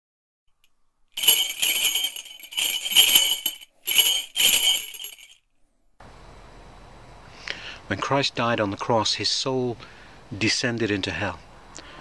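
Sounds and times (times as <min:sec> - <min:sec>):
small bells jingling: 0:01.2 - 0:05.4.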